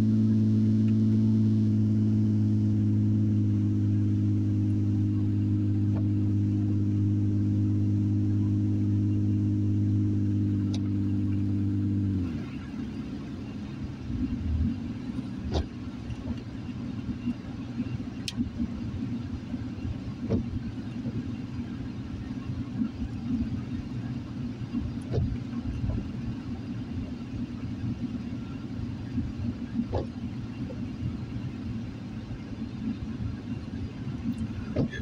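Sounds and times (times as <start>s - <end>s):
car engine and tyre rumble: 0.0s - 35.0s.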